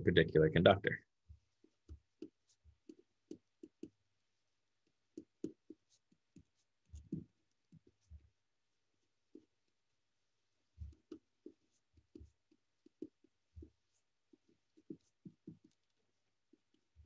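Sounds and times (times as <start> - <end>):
pen scratching on paper: 1.4 - 4.0, 4.8 - 8.3, 10.7 - 17.0.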